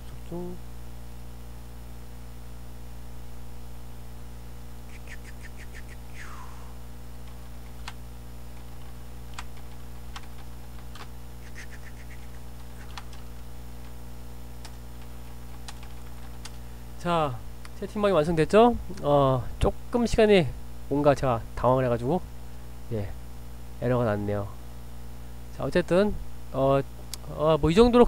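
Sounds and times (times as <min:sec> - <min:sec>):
electrical hum: 0:00.0 - 0:28.0
computer keyboard keystrokes: 0:08.6 - 0:11.1, 0:12.1 - 0:14.0, 0:14.6 - 0:16.6.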